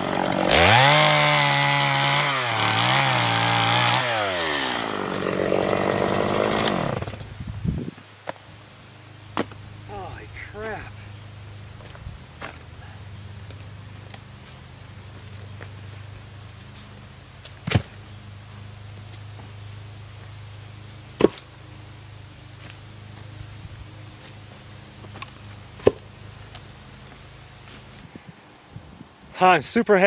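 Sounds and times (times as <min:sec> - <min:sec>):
crickets chirping: 0:07.2 - 0:21.1, 0:21.9 - 0:29.7.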